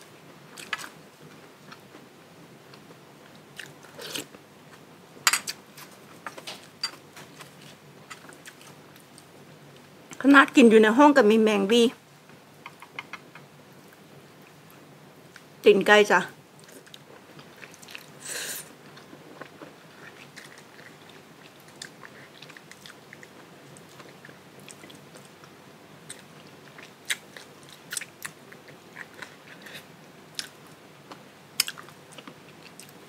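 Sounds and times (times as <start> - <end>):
chewing and gnawing: 7.3 - 9.3, 16.6 - 18.2, 18.8 - 33.0.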